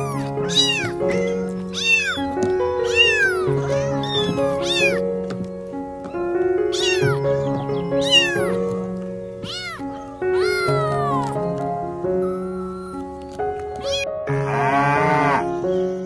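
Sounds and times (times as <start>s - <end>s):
kitten meowing: 0.0s - 5.1s, 6.0s - 8.8s, 9.4s - 14.1s
background music sustained notes: 0.0s - 16.0s.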